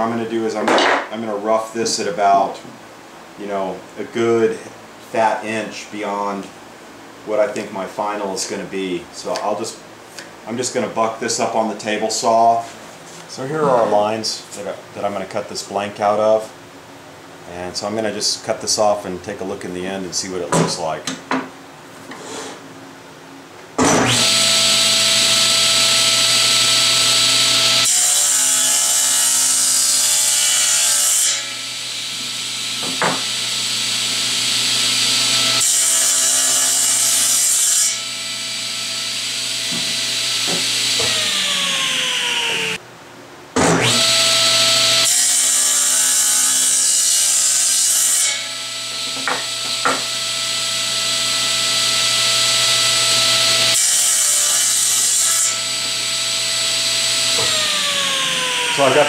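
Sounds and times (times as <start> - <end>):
table saw motor whine: 23.8 - 42.8, 43.6 - 59.0
saw blade cutting wood: 39.4 - 42.8, 52.8 - 59.0.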